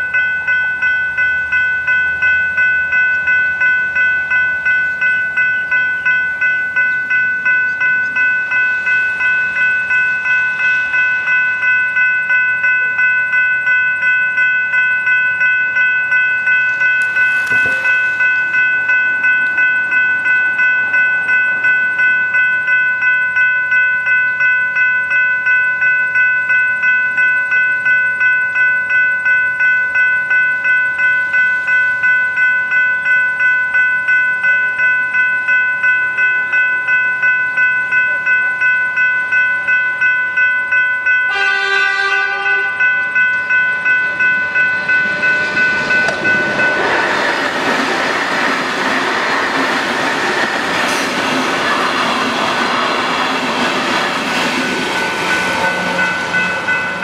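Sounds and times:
train rumble: 0.0 - 22.8, 41.3 - 57.0
electronic level-crossing bells: 0.0 - 57.0
train horn blast: 41.3 - 42.9, 55.4 - 56.6.

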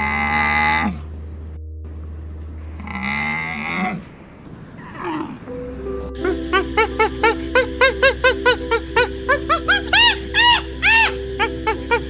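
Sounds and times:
soft background music: 0.0 - 3.7, 5.2 - 12.0
animal calling: 2.5 - 5.5, 6.2 - 12.0.

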